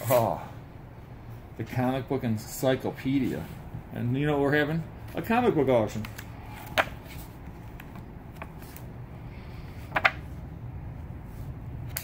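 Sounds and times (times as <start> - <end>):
book pages flipping: 5.9 - 9.0, 9.7 - 10.4.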